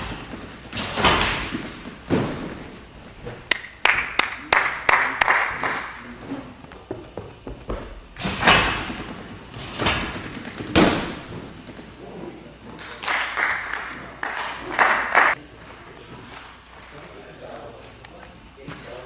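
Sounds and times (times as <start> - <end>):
landing thud on a mat: 0.0 - 3.4, 6.9 - 11.8
trampoline impacts: 0.0 - 4.2, 5.5 - 12.0.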